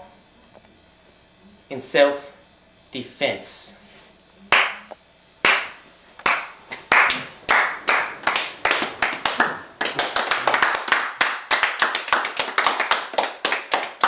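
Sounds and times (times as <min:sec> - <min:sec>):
hand clapping: 0:04.5 - 0:14.0.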